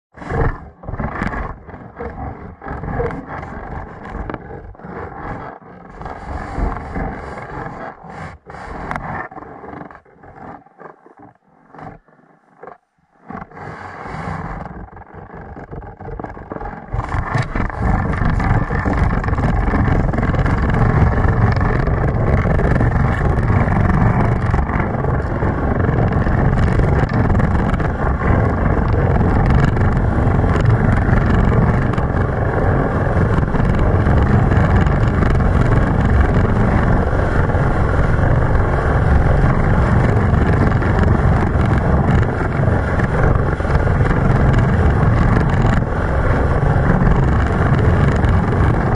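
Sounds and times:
sled runners rumbling over ice: 0.1 - 48.9
rush of air: 13.5 - 14.7, 16.9 - 48.9.

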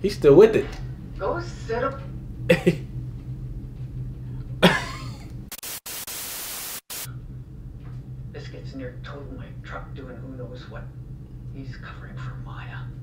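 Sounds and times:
person coughing: 2.5 - 2.8, 4.6 - 5.3
static hiss: 5.4 - 7.1.

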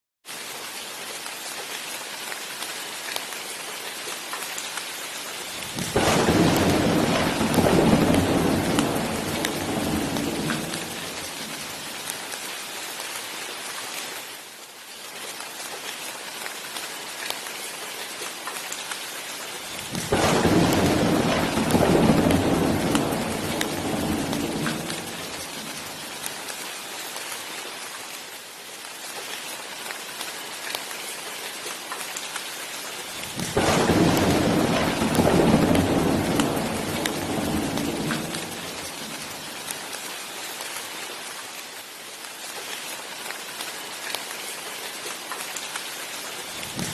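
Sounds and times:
steady rain: 0.2 - 46.9
thunder rumbling: 5.6 - 12.0, 19.8 - 26.3, 33.2 - 39.7.

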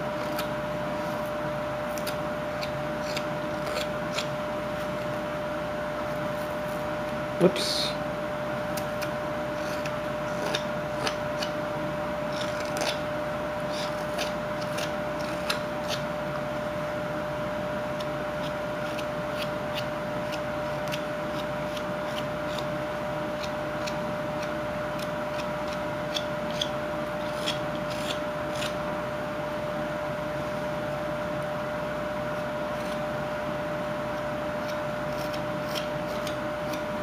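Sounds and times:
knife scraping wood: 0.0 - 5.1, 8.8 - 11.6, 12.2 - 16.5, 17.8 - 29.0, 32.3 - 33.2, 34.1 - 37.0
steady hum: 0.0 - 37.0.

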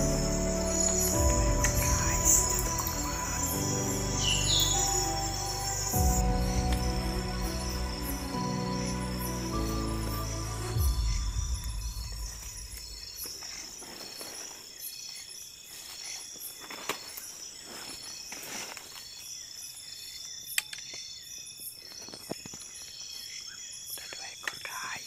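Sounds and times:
night insects trilling: 0.0 - 25.0
footsteps rustling through undergrowth: 11.0 - 19.8.

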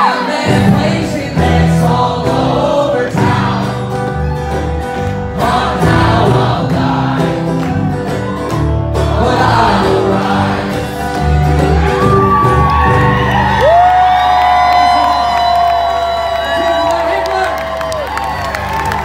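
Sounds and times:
man singing: 0.0 - 3.8
strummed acoustic guitar: 0.0 - 13.3.

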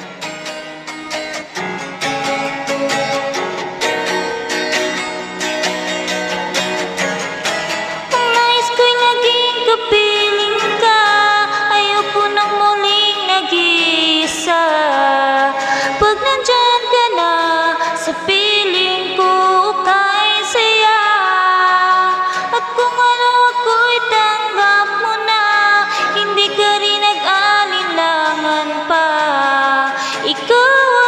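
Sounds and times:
acoustic guitar: 0.0 - 31.0
woman singing a slow ballad: 8.1 - 31.0.

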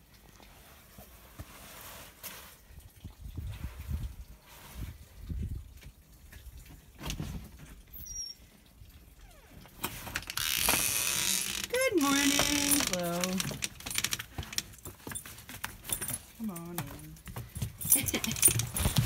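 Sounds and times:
door hinges creaking: 9.3 - 14.6
glass storm door rattling open: 10.0 - 14.4.

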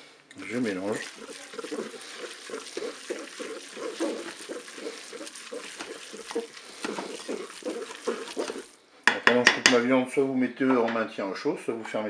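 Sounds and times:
spoon stirring pasta: 0.3 - 8.8
spoon scraping against pot: 0.4 - 8.8.

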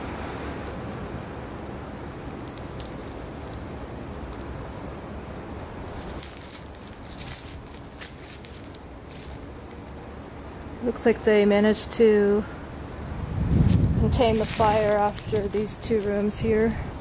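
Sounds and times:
steady background hiss: 0.0 - 17.0
footsteps crunching on broken glass: 5.8 - 10.0, 13.6 - 16.3.

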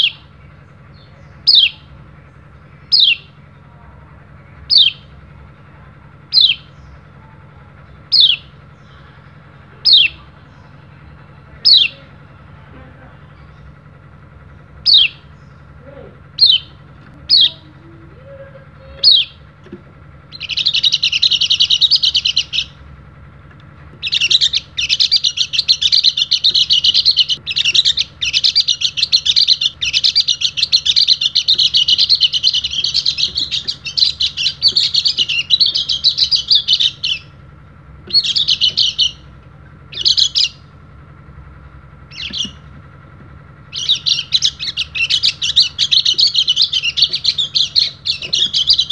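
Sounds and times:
bird chirps: 0.0 - 3.6, 4.4 - 22.8, 24.0 - 37.4, 38.0 - 40.8, 42.0 - 48.9
fast high twittering birdsong: 0.0 - 48.9.

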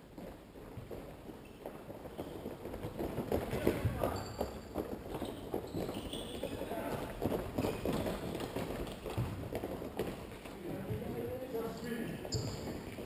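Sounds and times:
running footsteps on court: 0.0 - 13.0.

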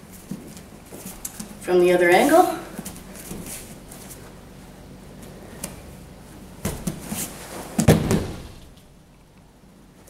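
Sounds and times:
feet scuffing on mat: 2.8 - 4.3
body thudding onto mat: 6.6 - 8.7.

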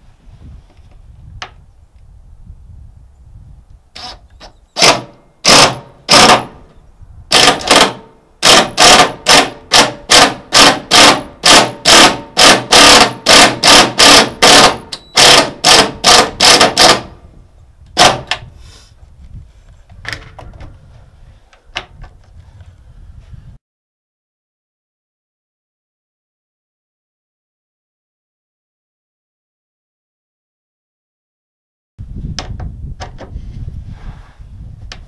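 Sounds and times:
impact driver hammering screws: 4.0 - 6.7, 7.3 - 17.2, 18.0 - 18.5.

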